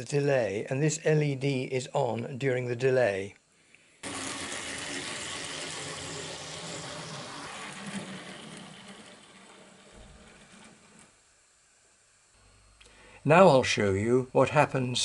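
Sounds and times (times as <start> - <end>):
model train motor whirring: 4.0 - 11.3.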